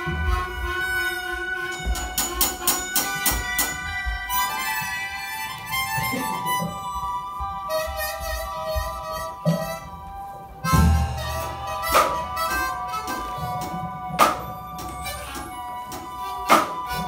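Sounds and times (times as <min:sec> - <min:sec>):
sustained reedy chords: 0:00.0 - 0:17.0
sharp percussive hits: 0:01.7 - 0:04.0, 0:10.7 - 0:16.9.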